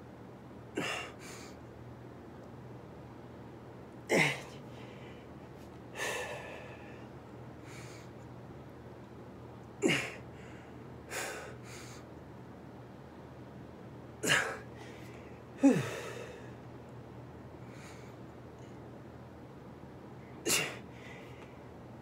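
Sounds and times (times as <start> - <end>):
man grunting: 4.1 - 4.6, 9.8 - 10.2, 15.6 - 16.3
man breathing forcefully: 6.0 - 7.0, 9.9 - 12.0, 15.6 - 16.5.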